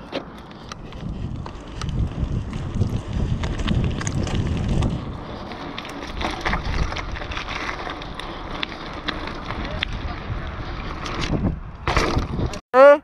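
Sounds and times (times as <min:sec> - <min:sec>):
bike clicks and rattles: 0:00.0 - 0:12.6
wind buffeting microphone: 0:00.5 - 0:12.6.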